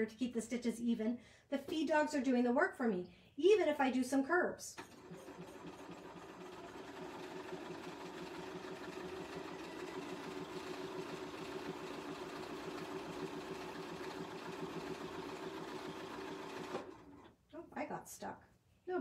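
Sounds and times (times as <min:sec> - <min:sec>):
sewing machine stitching: 0:04.8 - 0:17.4.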